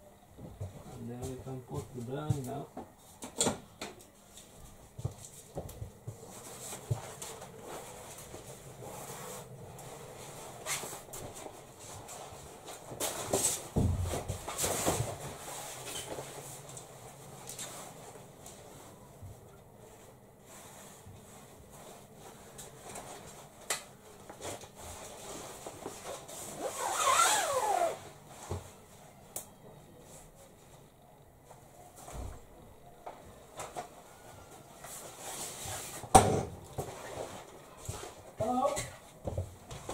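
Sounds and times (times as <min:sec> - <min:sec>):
blind fabric rustling: 0:00.1 - 0:39.9
fabric blind rustling and swishing: 0:19.8 - 0:28.4.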